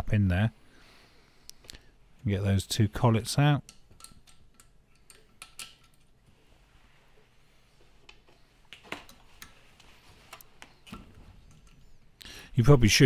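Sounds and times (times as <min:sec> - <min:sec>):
faint metallic clicks and taps: 0:03.6 - 0:06.1.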